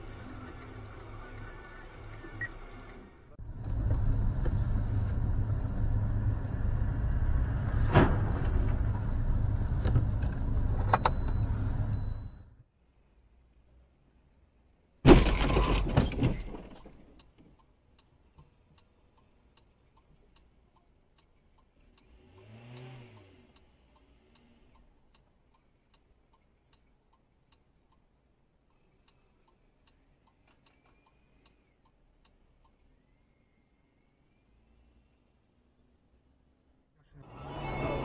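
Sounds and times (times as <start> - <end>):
car crash impact: 7.7 - 8.9, 15.0 - 17.2
faint regular ticking: 17.1 - 34.4
engine revving: 21.8 - 24.8, 37.2 - 38.0.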